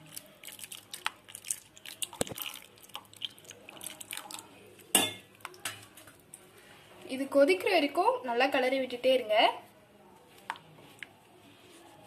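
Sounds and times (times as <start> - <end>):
liquid pouring: 0.0 - 4.5.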